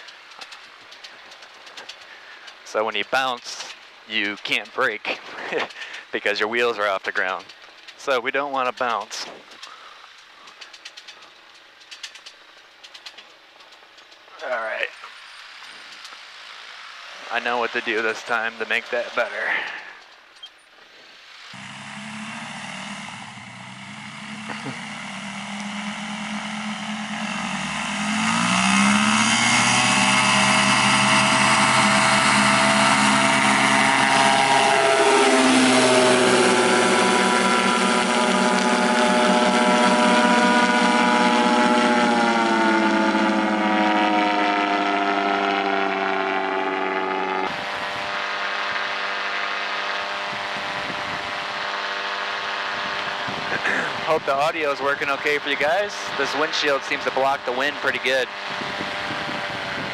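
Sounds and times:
aircraft engine drone: 0:00.0 - 0:59.9.

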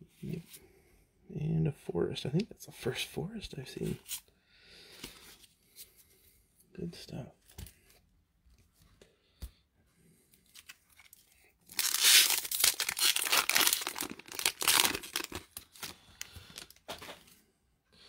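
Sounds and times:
foil wrapper tearing and crinkling: 0:10.5 - 0:16.8.

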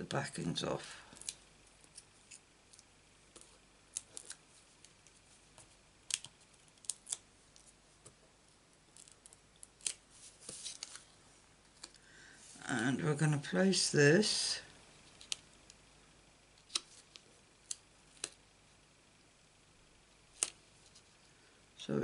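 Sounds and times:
peeling paper backings clicks and scratches: 0:01.2 - 0:07.7, 0:16.6 - 0:18.4.

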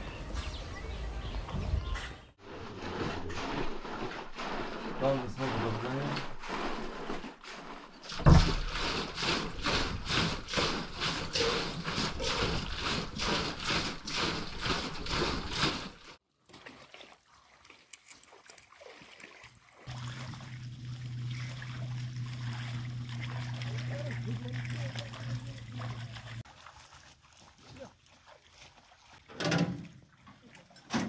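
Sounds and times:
liquid sloshing in churn: 0:02.4 - 0:31.0
churn thump: 0:08.2 - 0:08.7.

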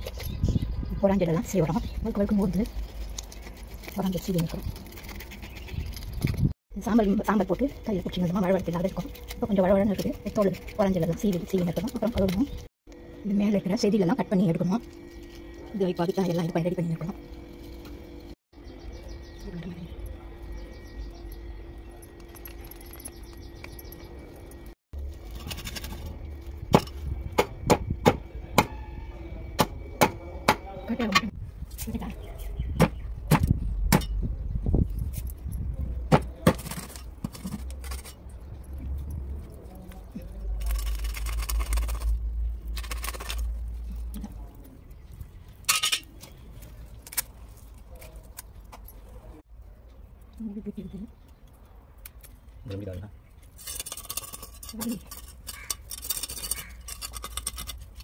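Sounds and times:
knife scraping fish scales: 0:53.6 - 0:58.0.

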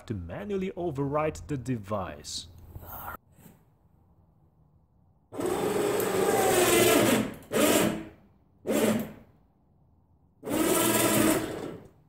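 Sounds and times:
electric winch motor running: 0:05.3 - 0:09.2, 0:10.4 - 0:11.9.

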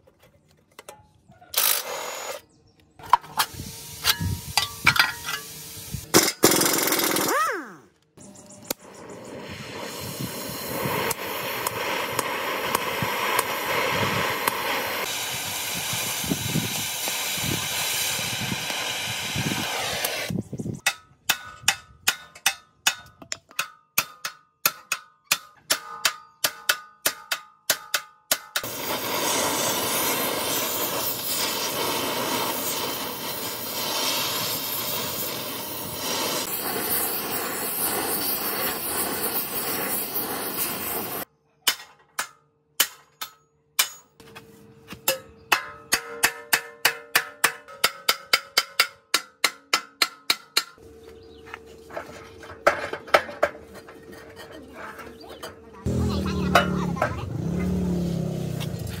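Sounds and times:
steady rushing hiss: 0:03.4 - 0:06.1, 0:09.0 - 0:20.8, 0:28.6 - 0:41.3
hammer blows ringing on steel: 0:45.0 - 0:50.8.

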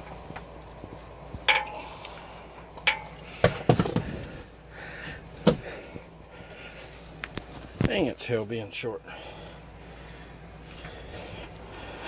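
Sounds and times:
tools clinking against engine: 0:01.4 - 0:02.2, 0:02.8 - 0:04.0.

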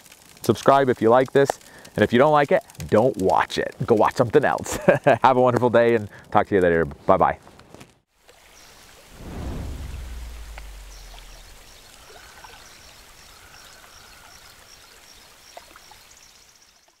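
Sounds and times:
deep low boom: 0:09.2 - 0:12.0.

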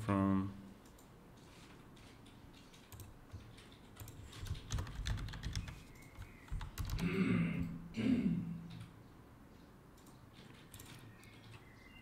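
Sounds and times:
typing on computer keyboard: 0:02.0 - 0:07.1, 0:10.0 - 0:11.6.

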